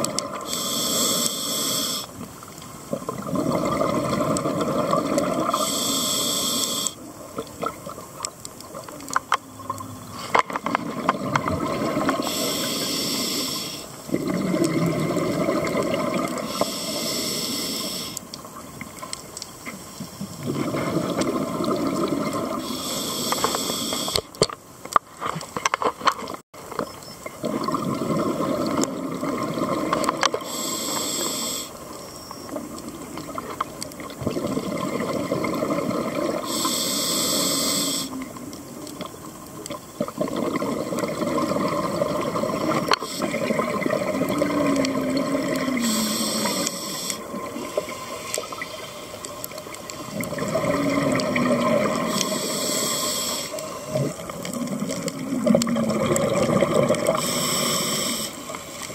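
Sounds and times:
regulator hissing inhalation: 0.4 - 2.2, 5.5 - 7.0, 12.2 - 14.0, 16.4 - 18.2, 22.6 - 24.3, 30.4 - 31.8, 36.4 - 38.3, 45.6 - 48.3, 52.0 - 54.0, 57.1 - 58.6
bubbling exhalation: 3.1 - 5.6, 14.1 - 16.4, 40.1 - 46.6, 50.1 - 52.2, 53.9 - 57.2.

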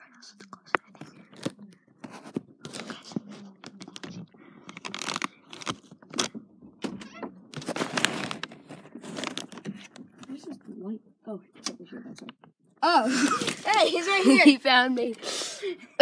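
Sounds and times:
recording device handling: 0.4 - 10.4
rustling and scraping: 0.8 - 10.7.

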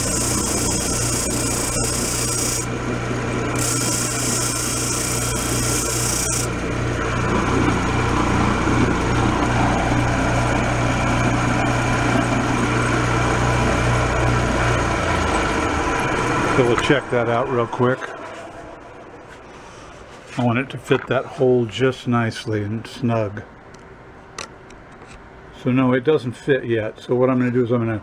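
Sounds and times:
wood rasping on sandpaper: 0.0 - 2.7, 3.6 - 6.5
disc sander motor hum: 0.0 - 17.7.

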